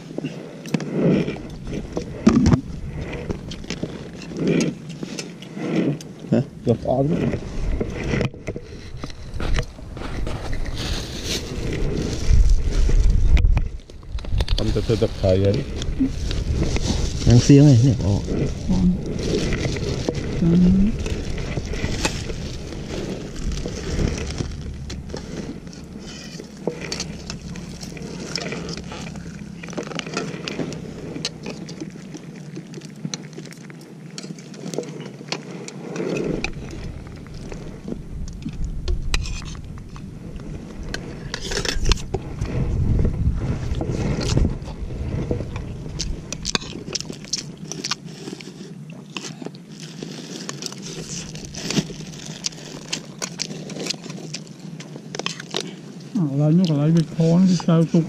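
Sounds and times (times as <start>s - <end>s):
wind rumble on microphone: 0.0s - 32.3s, 36.0s - 48.0s
plastic bags rustling: 9.2s - 13.2s, 14.3s - 35.2s, 46.6s - 58.0s.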